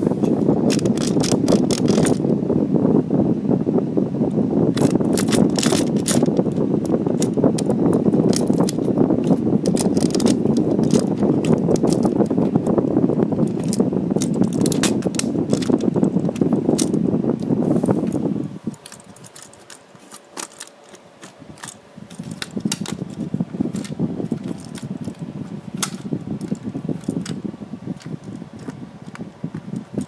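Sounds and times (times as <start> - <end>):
small plastic and metal clicks: 0.7 - 2.2, 25.8 - 27.4
handling noise rustling: 4.7 - 30.0.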